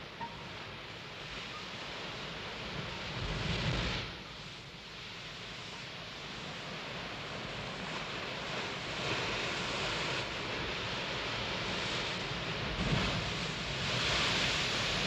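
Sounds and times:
sea surf washing among rocks: 6.1s - 15.0s.

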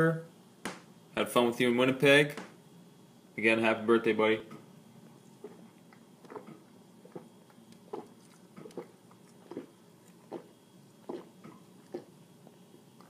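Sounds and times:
man gulping swallows: 5.2s - 13.0s.

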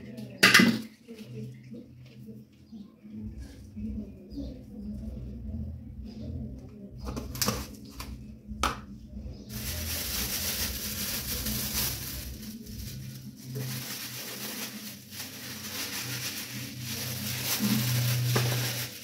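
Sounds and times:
plastic glove rustling: 9.5s - 19.0s.

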